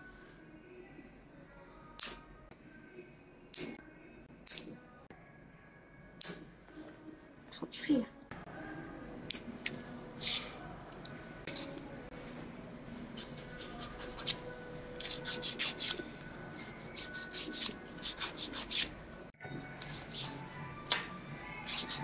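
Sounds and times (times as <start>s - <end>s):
nail file scraping fingernails: 11.5s - 11.8s, 12.9s - 14.4s, 15.0s - 16.0s, 16.6s - 18.9s, 19.7s - 20.4s, 21.7s - 22.0s.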